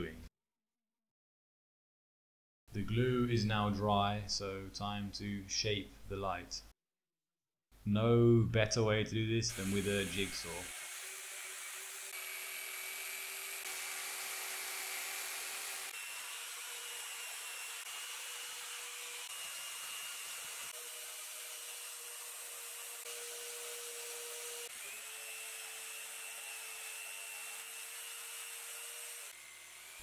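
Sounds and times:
jigsaw cutting wood: 9.5s - 30.0s.

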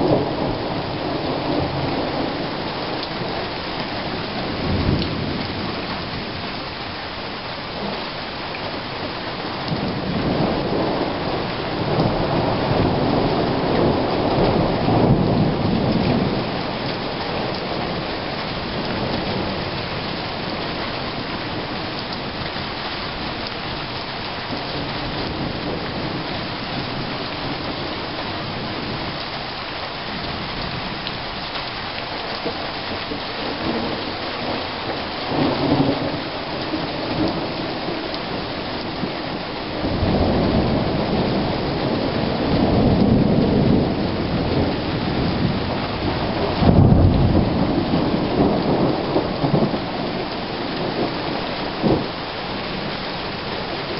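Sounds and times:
rolling thunder: 0.0s - 3.4s, 9.6s - 22.3s, 33.4s - 52.2s
steady rain: 0.0s - 53.9s.

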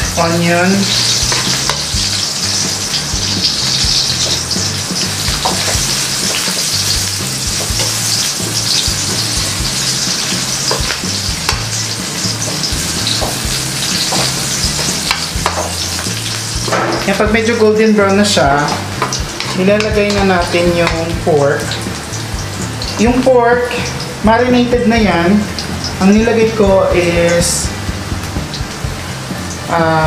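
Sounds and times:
garlic and onion sizzling in oil: 0.0s - 30.0s
spatula scraping and tapping wok: 0.9s - 17.2s, 18.6s - 21.1s.

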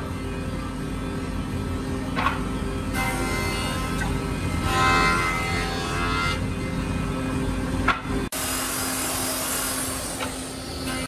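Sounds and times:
woodworking power tools whining: 2.9s - 7.2s, 8.3s - 11.0s
harsh hissing machine noise: 8.3s - 11.0s.

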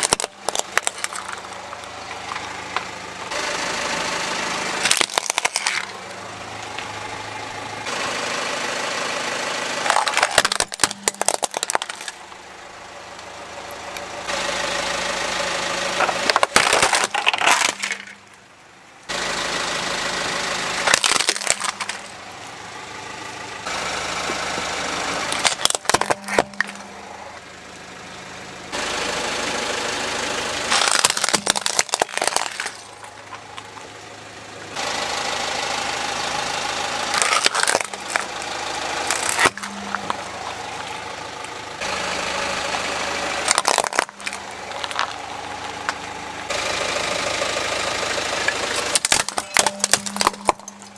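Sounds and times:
toy cars crunching under tyre: 0.0s - 2.9s, 4.8s - 6.0s, 9.8s - 12.4s, 15.8s - 18.4s, 20.8s - 22.2s, 24.3s - 27.0s, 30.7s - 34.2s, 37.0s - 41.6s, 42.8s - 46.0s, 48.5s - 50.9s
car engine idling: 0.0s - 50.9s.

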